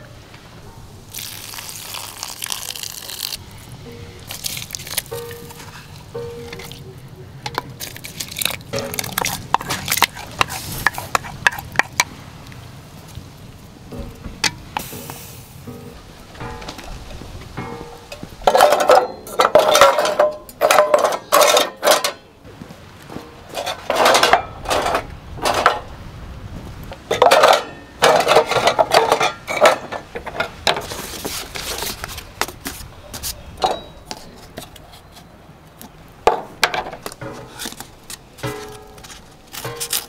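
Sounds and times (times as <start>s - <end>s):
pots and dishes clattering: 7.5s - 12.1s, 14.0s - 22.2s, 23.2s - 25.8s, 27.1s - 30.9s, 36.3s - 37.8s, 38.4s - 40.0s.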